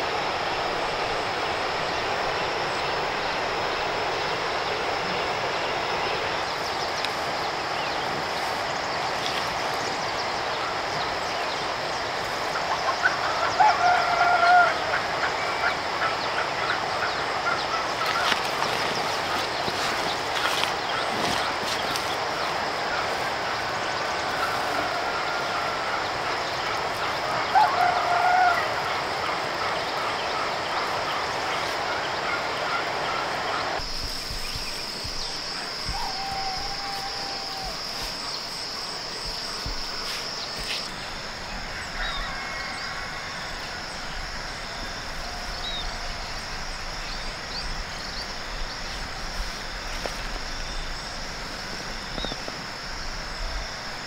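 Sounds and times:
steady outdoor hiss: 0:00.0 - 0:54.0
farm fowl calling: 0:12.5 - 0:48.1.

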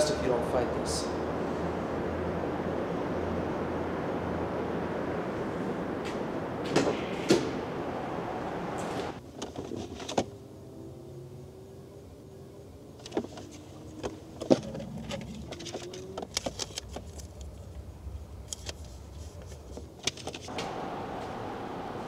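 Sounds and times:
steady background hiss: 0:00.0 - 0:09.4, 0:17.2 - 0:22.0.

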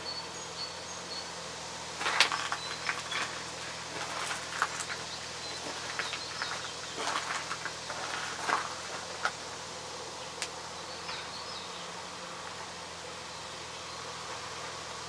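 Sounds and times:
faint birds chirping: 0:00.0 - 0:15.0.

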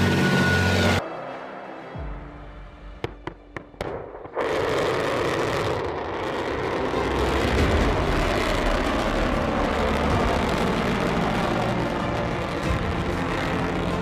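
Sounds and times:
rocket motor roar: 0:04.8 - 0:14.0.

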